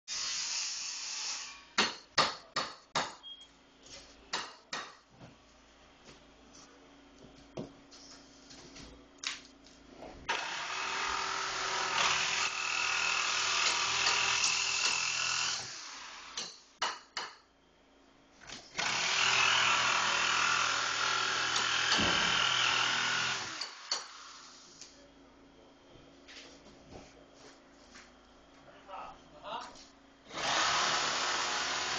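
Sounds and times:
power tool running hard: 0:10.3 - 0:16.3, 0:18.8 - 0:23.8, 0:30.3 - 0:31.9.

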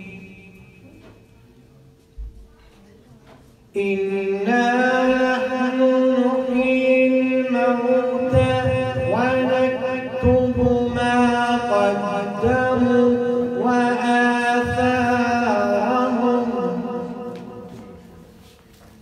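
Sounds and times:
man reciting melodically: 0:03.7 - 0:18.3.

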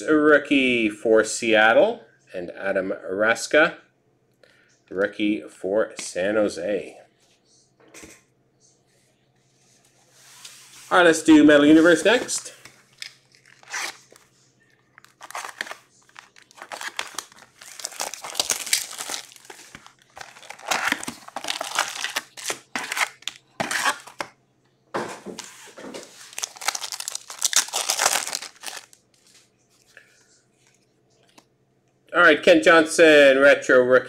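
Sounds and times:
plastic wrap crinkling and tearing: 0:12.8 - 0:14.3, 0:14.9 - 0:24.3, 0:25.4 - 0:29.0.

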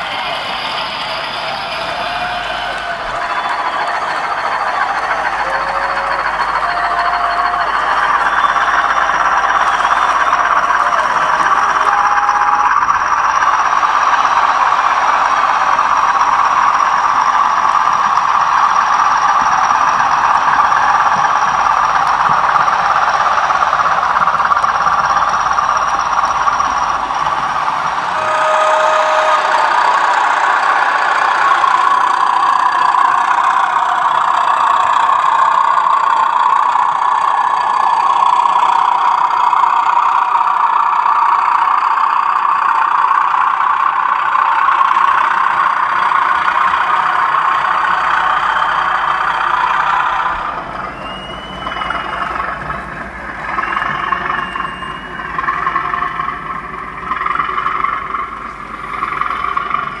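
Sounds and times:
loud diesel engine sound: 0:00.0 - 1:00.0
rising and falling engine sound: 0:00.0 - 1:00.0
short high tones: 0:28.0 - 0:31.8.

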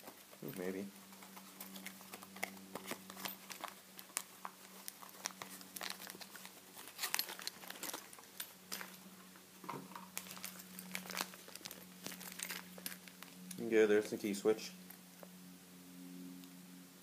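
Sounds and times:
low hum: 0:00.0 - 0:17.0
plastic packaging crinkling: 0:01.6 - 0:14.2.

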